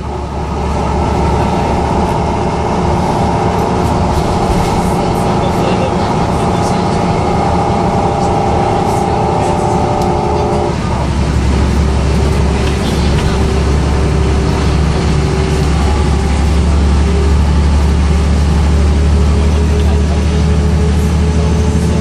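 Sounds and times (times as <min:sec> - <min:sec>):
diesel engine drone: 0:00.0 - 0:22.0
gearbox whine: 0:03.9 - 0:18.2.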